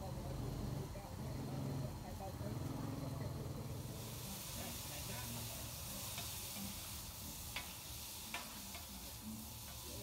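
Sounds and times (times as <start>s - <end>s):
meat sizzling on griddle: 3.7s - 10.0s.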